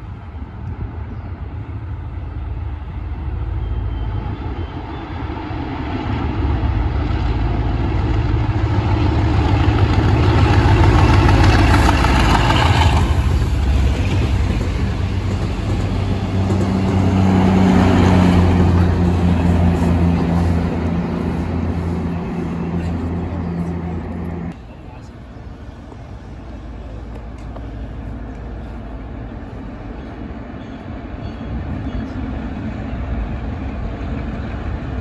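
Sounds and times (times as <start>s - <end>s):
diesel locomotive passing: 0.0s - 35.0s
low engine drone: 0.0s - 35.0s.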